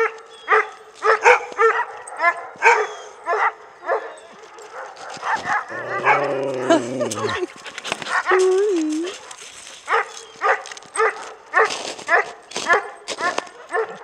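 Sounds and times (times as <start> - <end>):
dog yipping: 0.3 - 6.5, 7.1 - 14.0
dog howling: 5.4 - 9.2.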